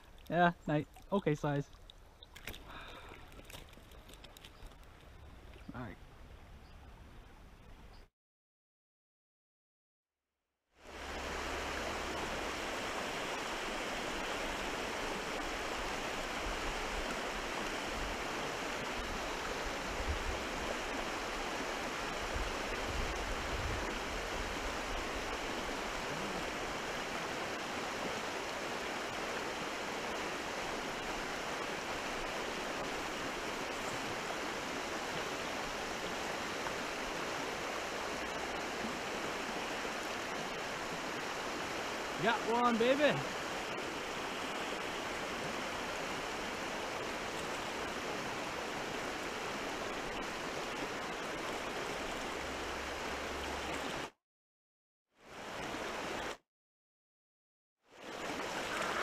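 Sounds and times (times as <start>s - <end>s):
river water rushing: 10.8s - 54.1s, 58.0s - 59.0s.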